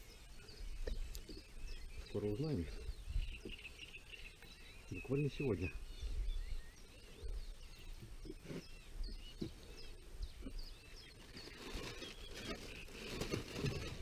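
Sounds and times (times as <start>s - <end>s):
birds chirping and singing: 0.0s - 14.0s
rustling scraping noise: 8.2s - 9.6s, 11.1s - 14.0s.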